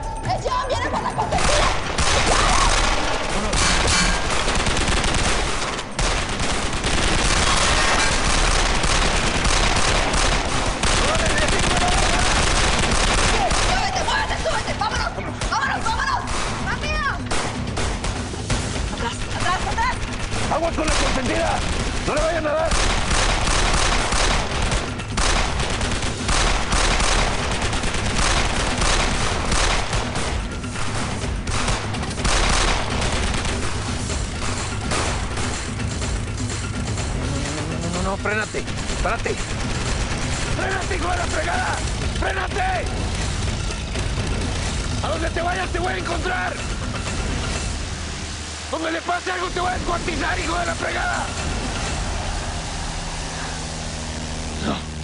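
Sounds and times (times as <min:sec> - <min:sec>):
volley of gunshots: 0:01.3 - 0:35.8, 0:38.3 - 0:46.6
rapid gunfire: 0:01.3 - 0:47.5.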